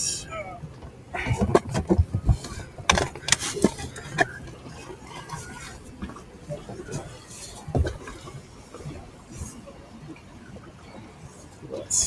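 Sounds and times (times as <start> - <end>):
microphone handling knocks and clicks: 0.8 - 4.4, 7.6 - 8.2.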